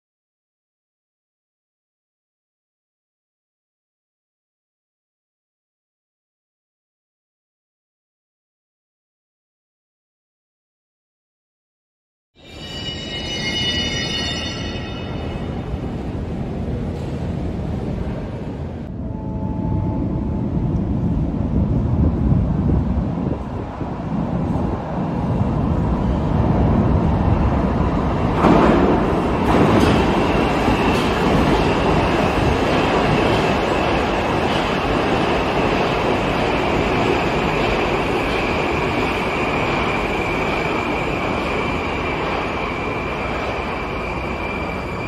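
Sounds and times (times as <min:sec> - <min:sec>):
metro train wheels rumbling on rails: 0:12.4 - 0:45.0
loud clacks of train wheels: 0:28.2 - 0:41.1.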